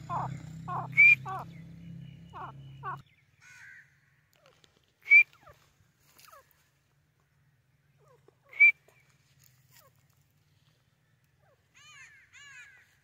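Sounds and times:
francolin calling: 0.0 - 3.8.

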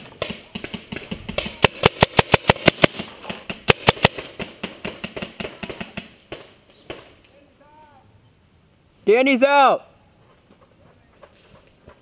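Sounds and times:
paintball marker firing shots: 0.1 - 7.1.

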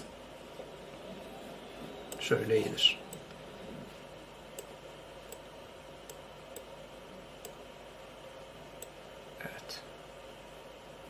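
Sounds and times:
faint room hiss: 0.0 - 11.0
computer mouse clicking: 5.3 - 6.7.

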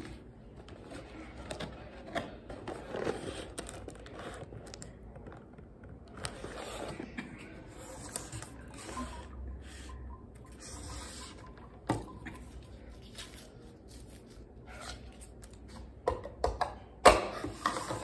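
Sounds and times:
cardboard and paper rustling: 0.0 - 9.2.

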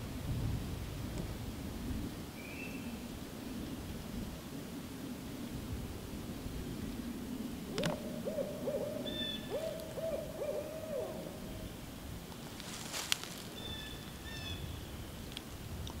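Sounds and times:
owl hooting: 7.6 - 11.7, 13.5 - 14.7.

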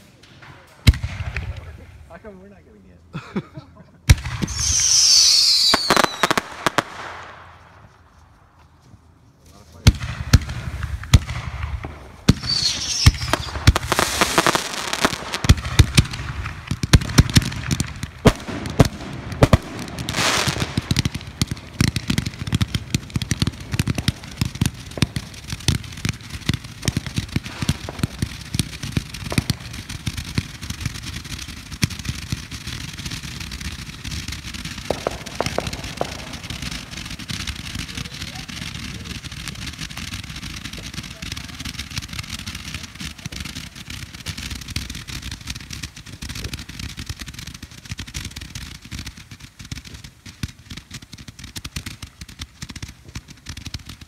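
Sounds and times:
fireworks popping and crackling: 0.0 - 2.8, 3.9 - 54.0
fireworks hissing: 4.2 - 6.7, 12.1 - 16.0.

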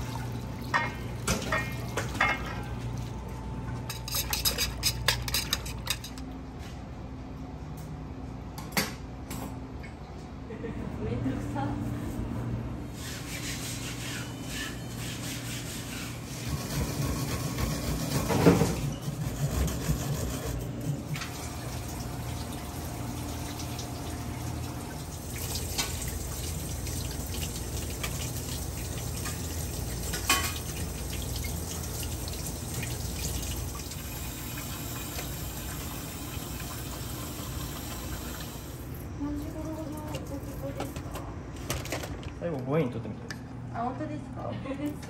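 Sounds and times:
tap water running into steel sink: 21.2 - 38.8.

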